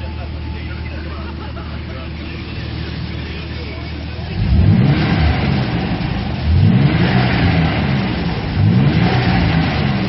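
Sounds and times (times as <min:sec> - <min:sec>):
car engine revving from inside cabin: 0:04.4 - 0:10.0.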